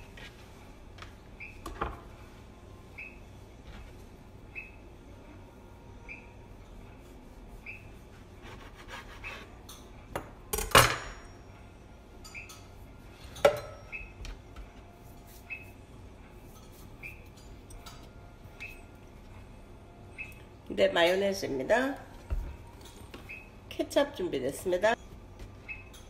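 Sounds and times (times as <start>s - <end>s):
faint high chirp: 2.9s - 3.3s, 4.5s - 4.9s, 6.0s - 6.4s, 7.6s - 8.0s, 12.2s - 12.7s, 13.7s - 14.2s, 15.4s - 15.8s, 17.0s - 17.5s, 18.5s - 19.0s, 19.9s - 20.5s, 23.2s - 23.6s, 25.6s - 26.0s
knife sawing through bread: 8.0s - 9.6s.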